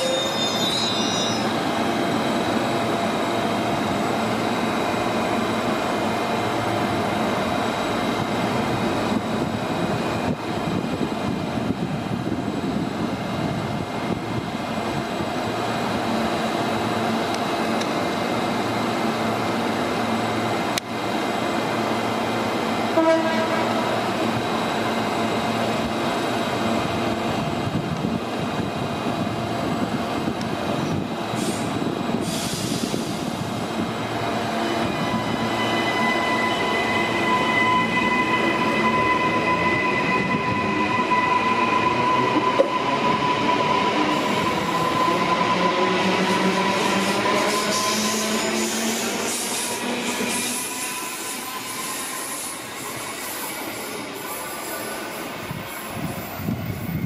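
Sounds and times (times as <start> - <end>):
train horn toot: 23.0 - 23.8
hiss of air: 31.3 - 33.6.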